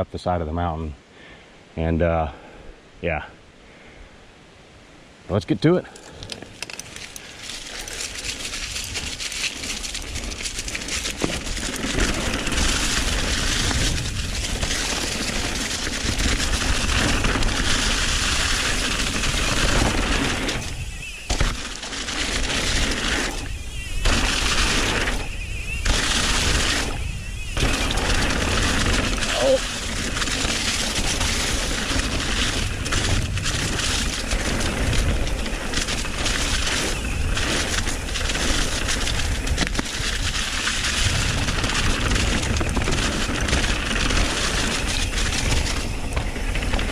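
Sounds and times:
tyre and trail noise: 5.4 - 46.9
bike clattering: 6.2 - 23.4, 27.6 - 46.9
wind rushing over microphone: 10.0 - 46.9.

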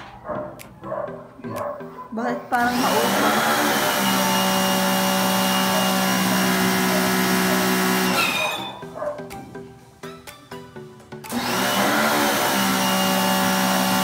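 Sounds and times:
pressure washer running: 2.6 - 8.8, 11.3 - 14.0.

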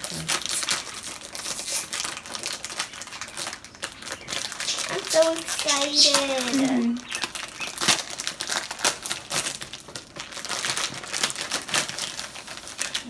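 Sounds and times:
plastic wrapping crackling: 0.0 - 13.0.

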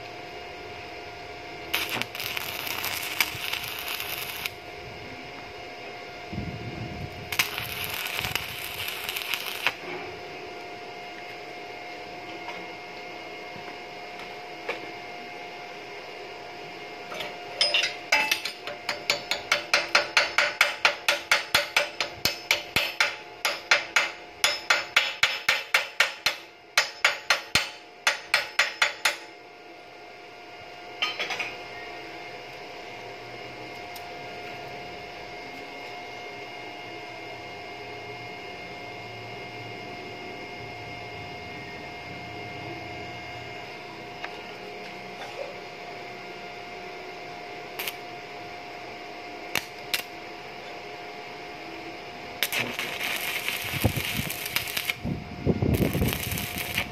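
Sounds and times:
arc welding crackle: 1.6 - 4.8, 7.1 - 9.9, 47.7 - 48.1, 49.5 - 50.3, 52.3 - 56.9
hammer striking steel: 17.1 - 29.3.

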